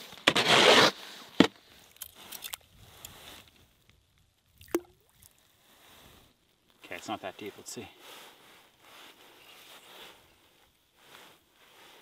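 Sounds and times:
faint clicks of fishing gear: 1.8 - 4.0.

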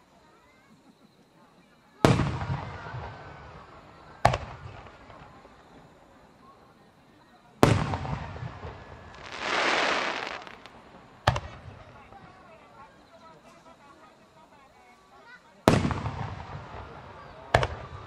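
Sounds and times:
firework shells bursting: 7.7 - 11.6.

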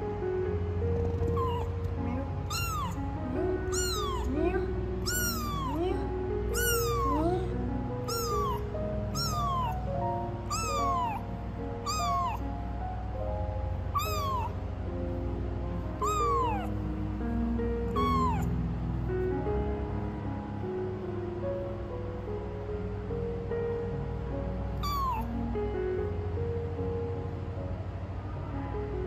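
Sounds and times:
background music: 0.0 - 29.0
kitten meowing: 1.0 - 12.5, 13.9 - 14.6, 16.0 - 16.8, 17.9 - 18.6, 24.8 - 25.4.

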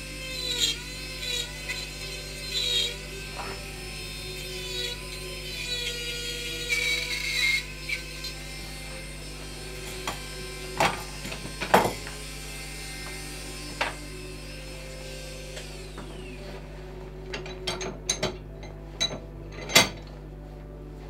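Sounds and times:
rotary tool grinding wood: 0.0 - 18.8.

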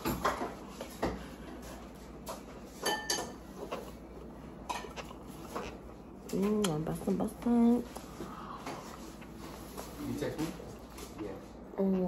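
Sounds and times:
dishes tapping and clicking: 0.0 - 1.2, 2.2 - 3.9.

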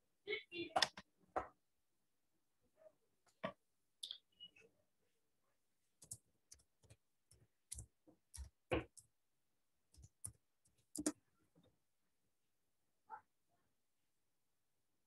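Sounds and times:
keyboard keys clicking: 10.0 - 11.2.

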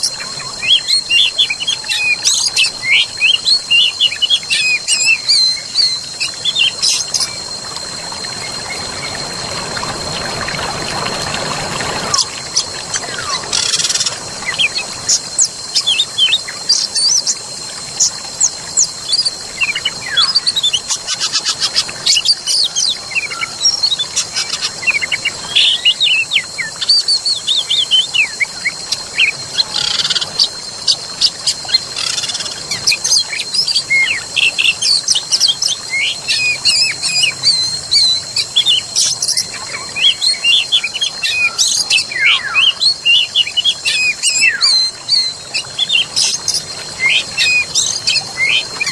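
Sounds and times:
birds singing and chirping: 0.0 - 9.6, 11.4 - 48.9
steady high-pitched drone: 0.0 - 26.8.

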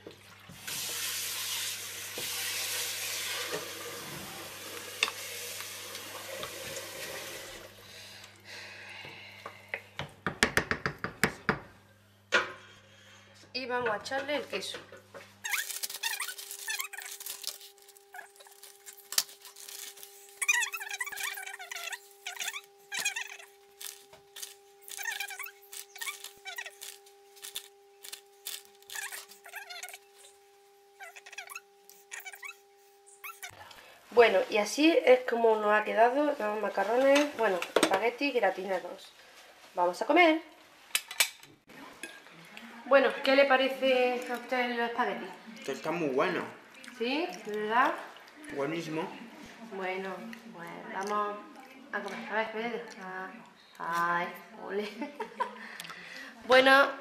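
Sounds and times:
spoon mixing spaghetti: 15.4 - 30.3
plastic bag crinkling: 15.4 - 30.4
squeaky chirps: 15.4 - 30.4, 31.0 - 33.6.

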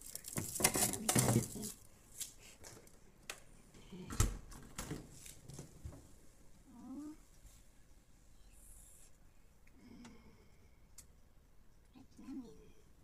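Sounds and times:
frozen items clattering: 0.0 - 1.8
plastic bags rustling: 0.0 - 1.9.

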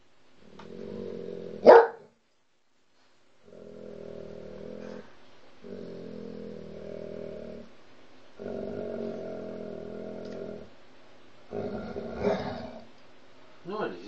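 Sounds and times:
dog growling low: 0.4 - 1.7, 3.4 - 7.8, 8.4 - 10.8, 11.5 - 13.0
dog barking sharply: 1.6 - 2.0.

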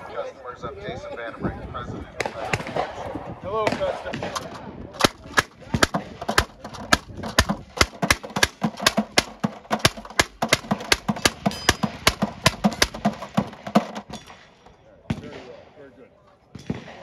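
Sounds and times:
gatling gun firing rapidly: 5.0 - 14.2.

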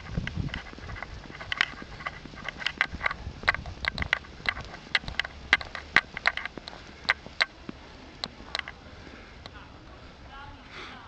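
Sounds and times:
strap clicking on camera body: 0.0 - 7.5, 8.2 - 8.8
wind on microphone: 0.0 - 10.7.

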